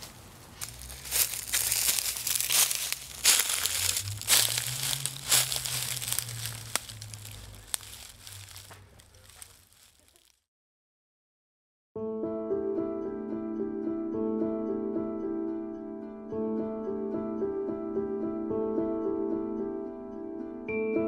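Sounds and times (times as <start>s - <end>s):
footsteps crunching dry leaves: 0.0s - 10.4s.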